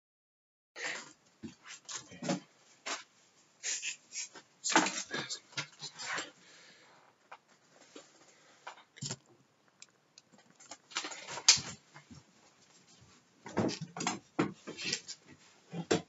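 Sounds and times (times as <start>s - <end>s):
knocks and thuds: 13.4s - 14.8s.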